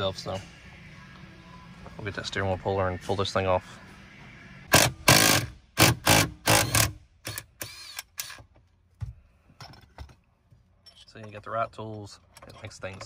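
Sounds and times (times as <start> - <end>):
tools clicking and clinking: 10.8 - 13.0.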